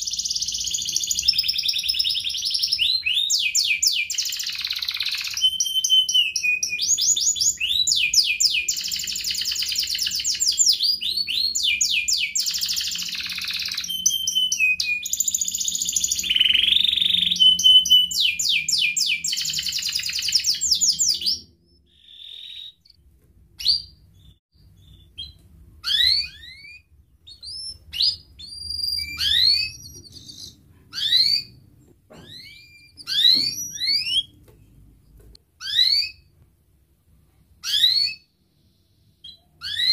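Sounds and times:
canary singing trills: 0.0 - 23.0, 23.6 - 34.4, 35.6 - 36.3, 37.6 - 39.9.

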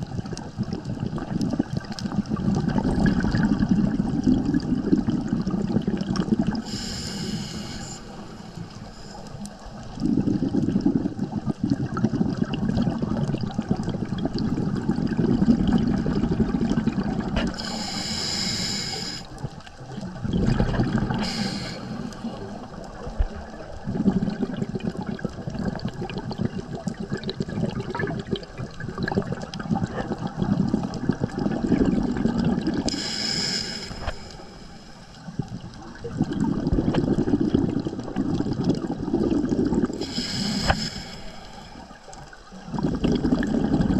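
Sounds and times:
bubbling exhalations underwater: 0.0 - 6.9, 9.3 - 18.0, 19.0 - 43.9
hissing regulator inhalations: 6.6 - 9.5, 17.4 - 19.3, 21.1 - 22.6, 32.9 - 35.3, 39.9 - 42.1.

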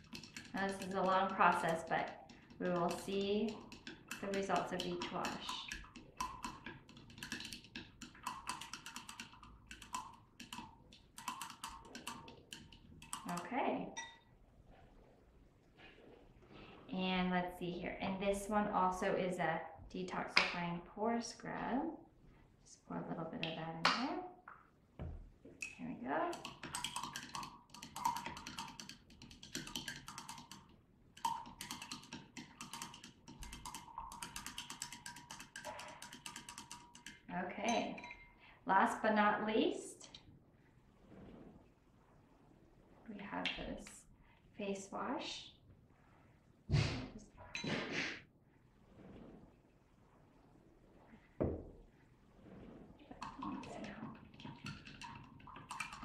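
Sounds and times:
stick ticking against wine glass: 0.0 - 13.4, 25.6 - 38.3
stick clinking against glass: 14.0 - 14.2, 37.7 - 38.3.

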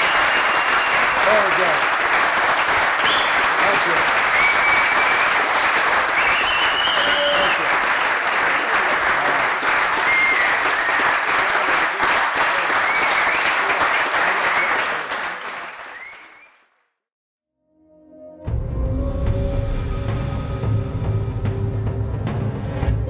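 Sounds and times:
high cheers: 0.0 - 16.3
crowd applauding: 0.0 - 16.8.

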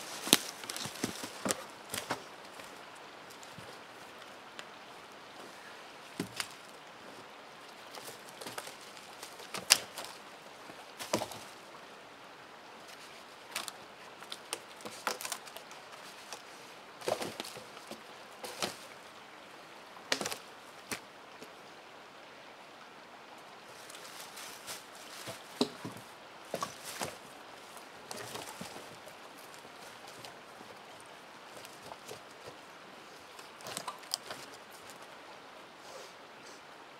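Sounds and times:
wooden sticks knocking together: 25.2 - 26.0.

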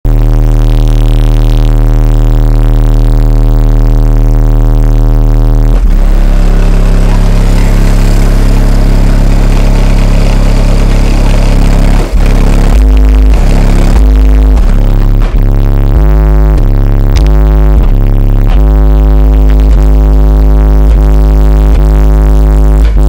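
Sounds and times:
bass-heavy music: 0.0 - 23.0
loud subwoofer bass note: 0.0 - 23.0.

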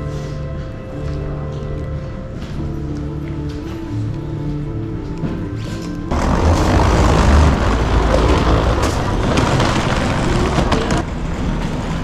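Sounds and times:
suitcase wheels rolling on tiles: 6.1 - 12.0.

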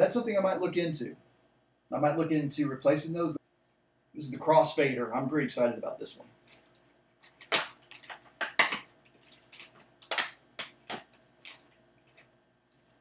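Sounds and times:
plastic bag crinkling: 7.3 - 12.3.

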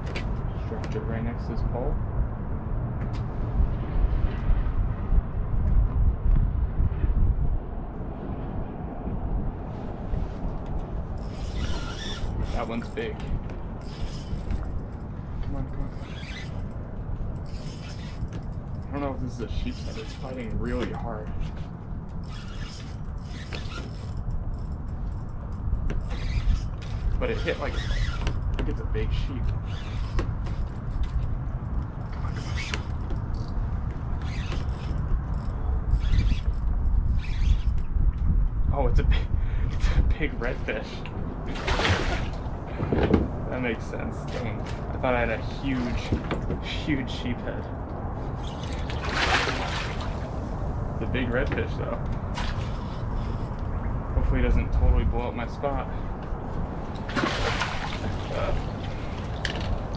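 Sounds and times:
wind buffeting microphone: 0.0 - 59.9
fishing reel clicking and creaking: 11.1 - 37.9, 52.6 - 53.7.

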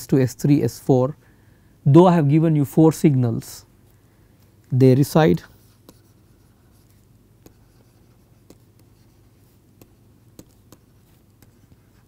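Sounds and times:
faint low hum: 0.0 - 12.0
stylus tapping and scratching: 5.4 - 12.0.

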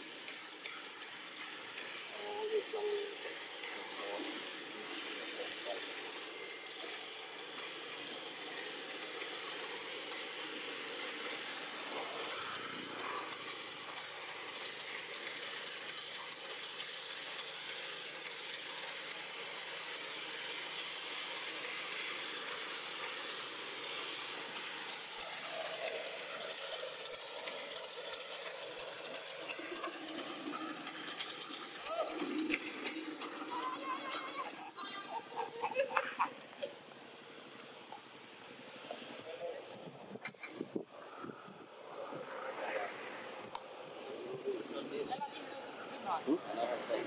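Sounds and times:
high-pitched hiss: 0.0 - 47.0
thin high whine: 29.7 - 47.0.

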